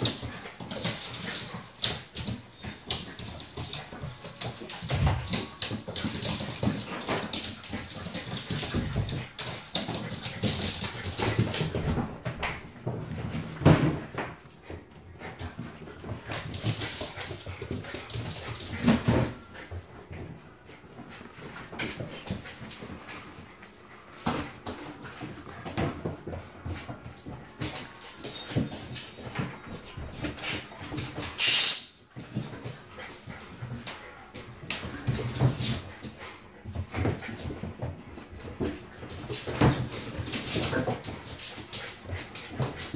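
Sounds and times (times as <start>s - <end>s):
paws scrabbling on floor: 0.0s - 31.4s, 32.0s - 42.9s
loud hissing: 31.4s - 31.9s.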